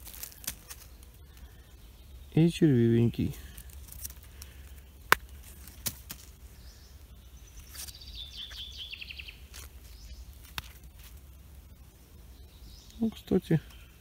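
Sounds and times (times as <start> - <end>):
songbird trill: 0.0 - 14.0
mushroom handling clicks: 3.6 - 6.3, 10.4 - 11.1.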